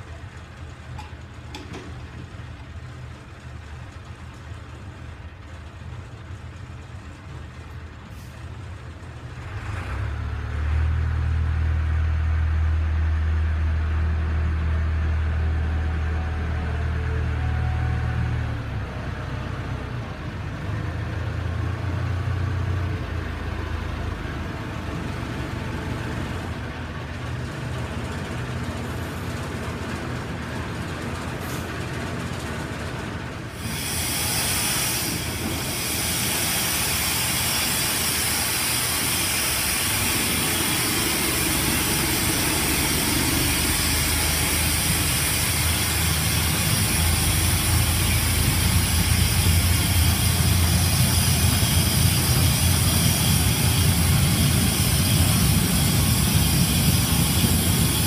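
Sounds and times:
diesel locomotive rumbling: 0.0 - 58.0
air leak hissing: 33.6 - 58.0.

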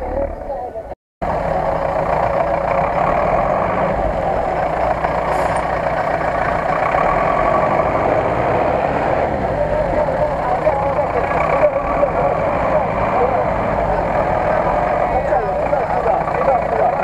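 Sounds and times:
truck engine running under load: 1.2 - 17.0.

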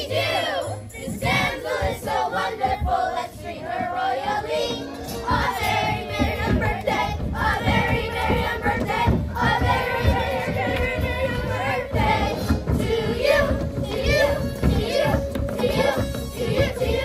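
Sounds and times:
children's chorus singing: 0.0 - 17.0
musical accompaniment: 0.0 - 17.0.

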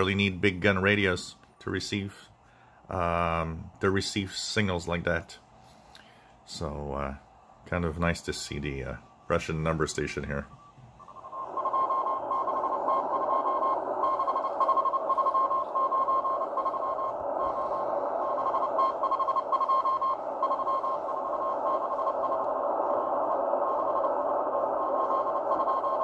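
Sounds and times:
shortwave radio hiss: 0.0 - 26.0
morse code tone: 8.7 - 26.0.

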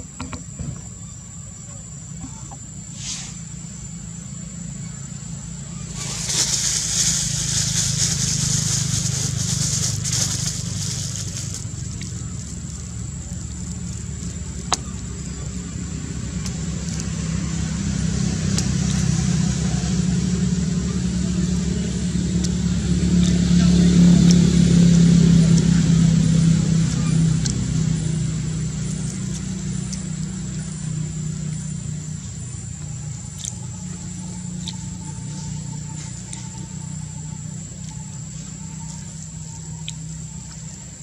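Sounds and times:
high-pitched insect whine: 0.0 - 16.6, 24.1 - 41.0
vehicle engine running: 0.0 - 41.0
loud hiss: 2.9 - 3.6, 5.8 - 11.8.

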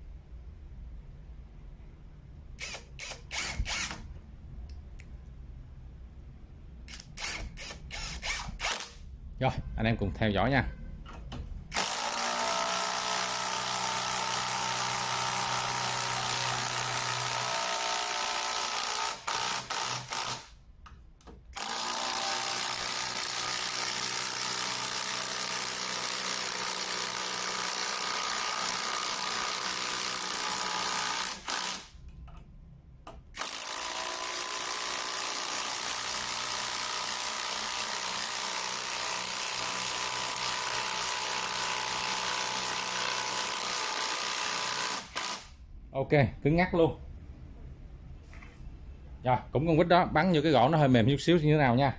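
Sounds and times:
impact driver hammering screw: 2.6 - 4.0, 6.9 - 9.0, 11.7 - 20.5, 21.6 - 31.9, 33.4 - 45.5.

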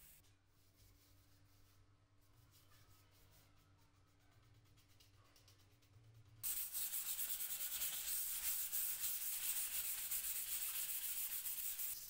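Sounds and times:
hand sanding wood: 6.4 - 12.0.

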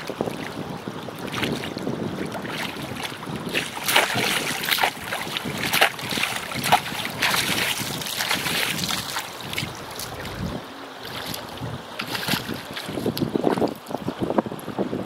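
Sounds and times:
river water splashing: 0.0 - 14.9
wind buffeting microphone: 0.0 - 15.0
metal chain pulled through water: 3.0 - 10.5.

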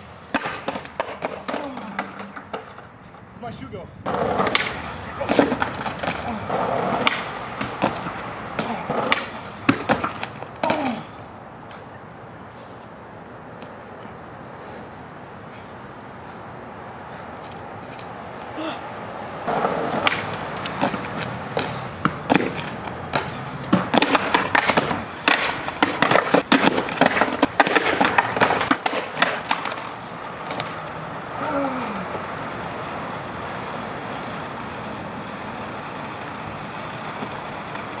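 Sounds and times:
skateboard wheels rolling: 0.0 - 3.4, 4.0 - 38.0
skateboard wooden clacks: 0.2 - 3.3, 4.1 - 11.0, 19.5 - 31.2, 32.0 - 38.0.

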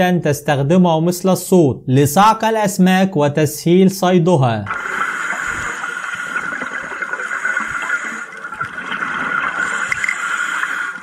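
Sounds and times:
underwater hiss: 4.7 - 11.0.

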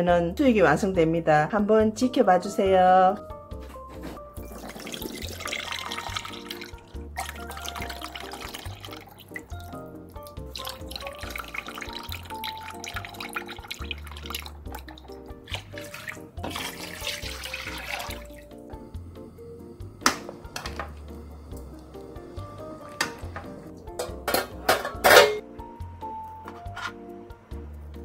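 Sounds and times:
background music with steady beat: 0.0 - 28.0
liquid pouring and splashing: 4.4 - 18.6
water pouring: 4.4 - 18.7.

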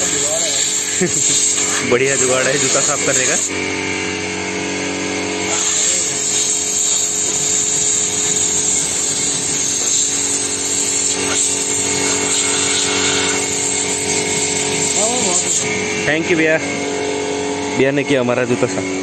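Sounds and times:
steady machine hum: 0.0 - 19.0
spray gun hissing: 5.5 - 15.6.

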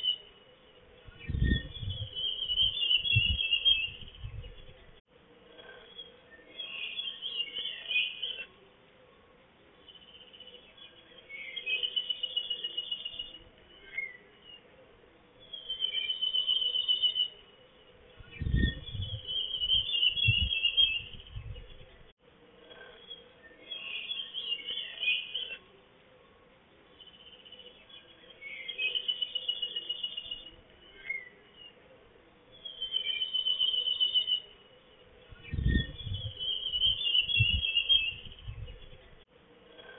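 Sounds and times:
low rumbling: 1.0 - 2.3, 3.1 - 5.0, 18.1 - 22.1, 35.2 - 39.2
songbird trilling: 32.5 - 39.2.

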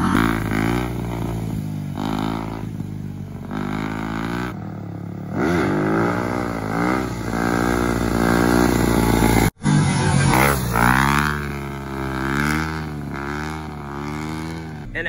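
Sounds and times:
dirt bike engine revving: 0.0 - 15.0.

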